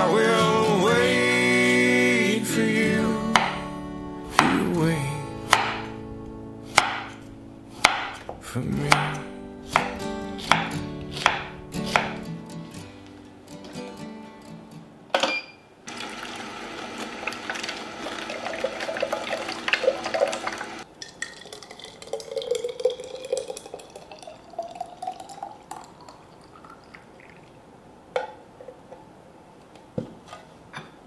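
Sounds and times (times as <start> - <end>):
juicer crushing carrots: 15.9 - 20.8
juice pouring into glass bottle: 17.2 - 27.6.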